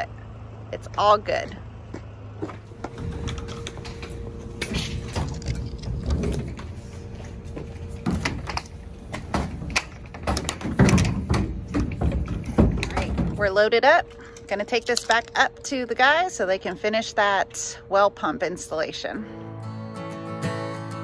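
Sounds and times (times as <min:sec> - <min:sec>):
steady hum: 0:00.0 - 0:21.0
plastic pipes clattering and knocking: 0:08.0 - 0:13.6.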